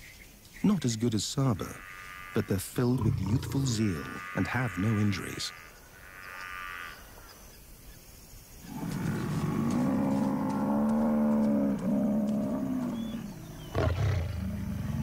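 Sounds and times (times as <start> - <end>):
buffalo bellowing: 8.7 - 15.0.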